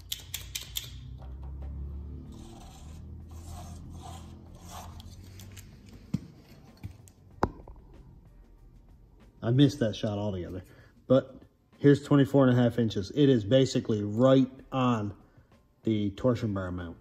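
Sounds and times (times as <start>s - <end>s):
steel scraping on metal: 2.1s - 5.6s.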